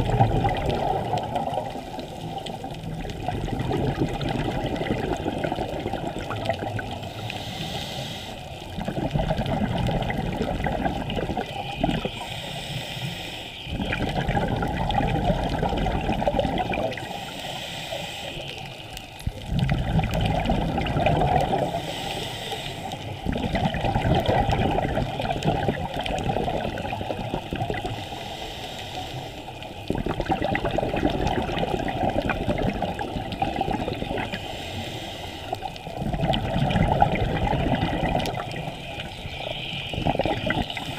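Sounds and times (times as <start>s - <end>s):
bubbles gurgling on exhale: 0.0s - 7.4s, 8.6s - 12.3s, 13.6s - 17.2s, 19.2s - 21.9s, 23.0s - 28.0s, 29.5s - 34.7s, 35.5s - 40.9s
regulator hiss on inhale: 1.1s - 2.9s, 6.5s - 8.9s, 10.4s - 14.2s, 16.8s - 19.5s, 21.4s - 23.6s, 25.1s - 30.2s, 32.6s - 36.1s, 38.0s - 40.9s.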